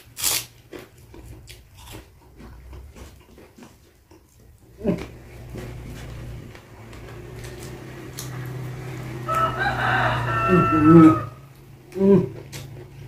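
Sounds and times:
steady low hum: 1.2s - 13.0s
rooster crowing: 8.3s - 11.6s.

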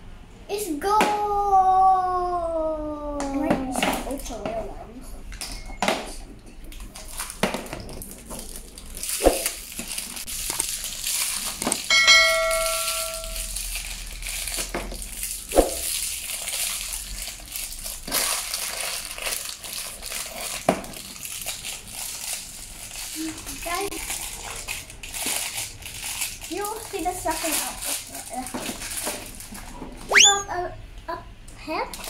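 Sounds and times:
wrappers crumpled and torn: 6.7s - 11.9s, 12.6s - 29.8s
short bell-like chime: 11.9s - 13.4s.

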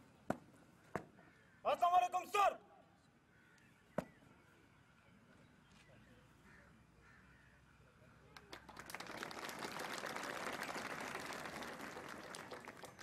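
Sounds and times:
crowd applauding: 8.4s - 13.0s.

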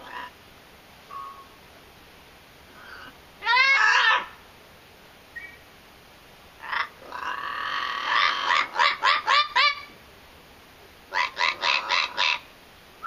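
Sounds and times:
parrot calling and squawking: 0.0s - 0.4s, 2.7s - 4.4s, 6.6s - 9.9s, 11.1s - 12.5s.

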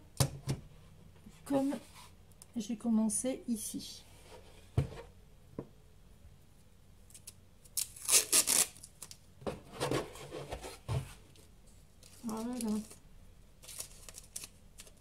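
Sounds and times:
masking tape pulled off roll: 7.8s - 9.2s.

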